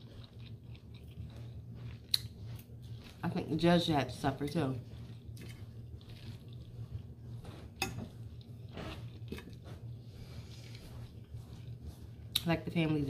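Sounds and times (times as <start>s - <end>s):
chewing and wet mouth sounds: 0.0s - 12.9s
low steady hum: 0.0s - 13.0s.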